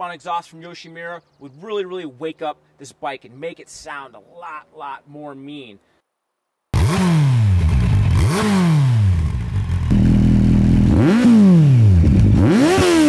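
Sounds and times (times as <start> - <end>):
motorcycle engine revving: 6.8 - 13.0
motorcycle engine idling: 7.5 - 8.3, 9.0 - 11.0.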